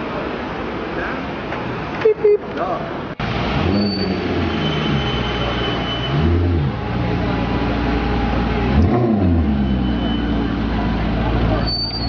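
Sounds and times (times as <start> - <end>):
street traffic: 0.0 - 12.0
car engine revving: 3.2 - 11.6.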